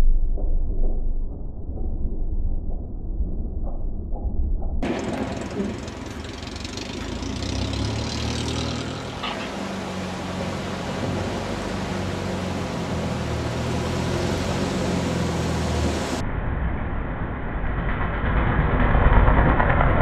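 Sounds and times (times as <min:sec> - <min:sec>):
propeller plane engine droning: 0:04.8 - 0:20.0.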